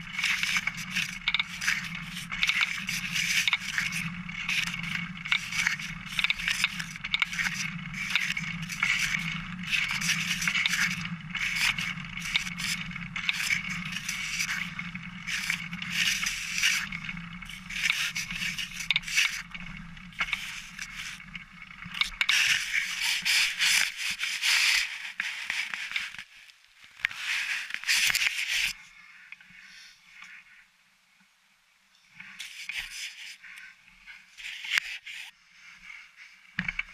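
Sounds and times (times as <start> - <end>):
bicycle frame rattling: 0.0 - 25.0
bicycle tyres rolling on trail: 0.0 - 30.6, 32.1 - 36.9.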